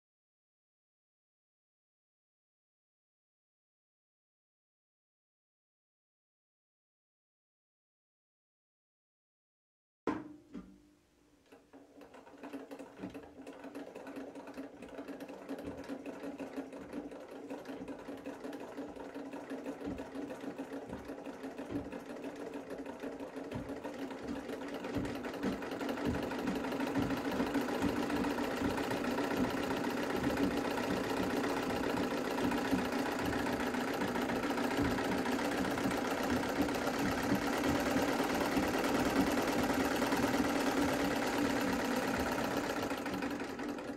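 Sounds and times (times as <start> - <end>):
treadle sewing machine running: 11.5 - 43.9.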